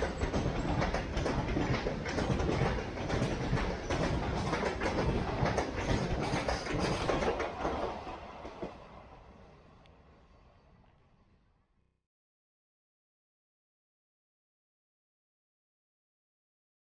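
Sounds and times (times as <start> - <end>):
freight train wheels clattering: 0.0 - 8.8.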